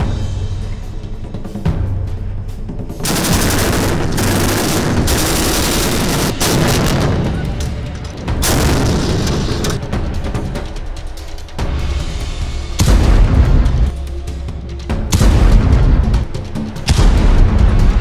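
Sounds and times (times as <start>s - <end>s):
background music with drum beat: 0.0s - 18.0s
rapid gunfire: 3.0s - 7.6s, 8.4s - 9.8s.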